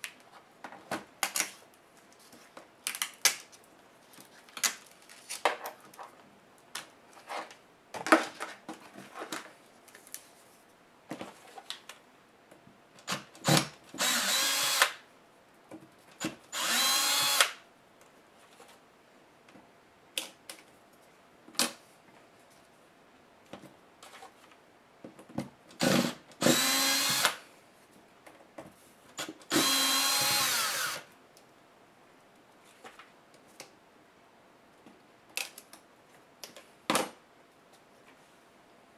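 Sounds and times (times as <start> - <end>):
electric screwdriver running: 14.0 - 15.0, 16.6 - 17.6, 25.8 - 27.4, 29.5 - 31.0.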